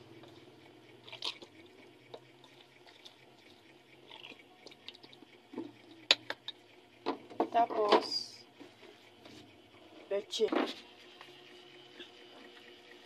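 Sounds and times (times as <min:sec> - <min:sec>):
wet squishing of kneading meat: 0:01.0 - 0:01.6.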